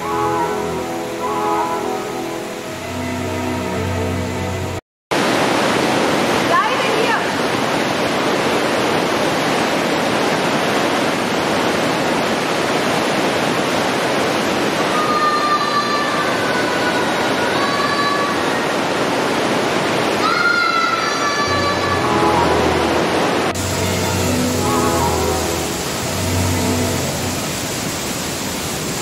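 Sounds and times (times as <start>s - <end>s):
mountain stream rushing: 0.0s - 29.0s
high gliding calls: 20.3s - 28.4s.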